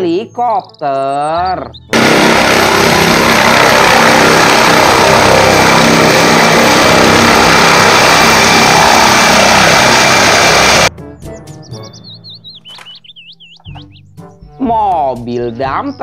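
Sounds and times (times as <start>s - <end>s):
helicopter rotor and engine: 1.9s - 10.9s
high-pitched whine: 2.0s - 10.9s.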